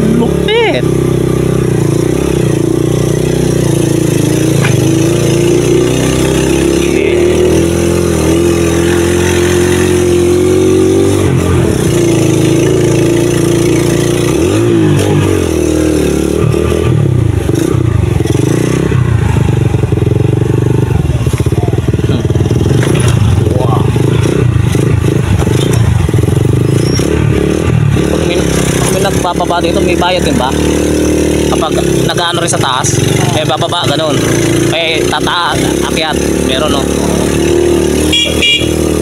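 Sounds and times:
small motorcycle engine running: 0:00.0 - 0:39.0.

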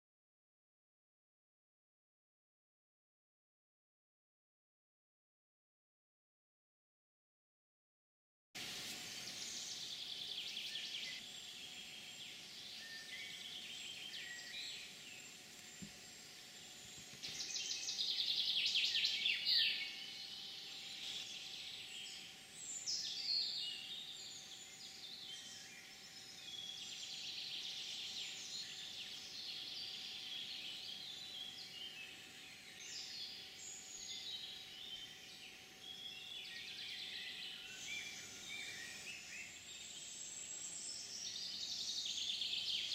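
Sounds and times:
faint steady hum: 0:08.6 - 0:42.9
wild birds singing: 0:08.6 - 0:42.9.

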